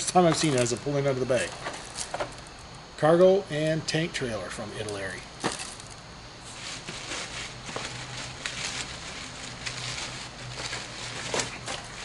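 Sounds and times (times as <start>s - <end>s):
bag and cardboard boxes rustling: 5.4s - 12.0s.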